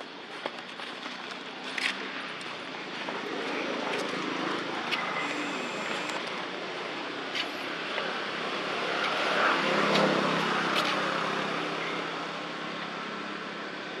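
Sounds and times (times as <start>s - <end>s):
passing vehicle engine: 3.0s - 13.6s.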